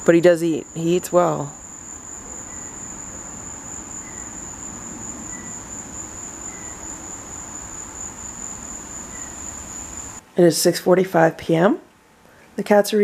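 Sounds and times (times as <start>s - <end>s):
insects trilling: 0.0s - 10.2s.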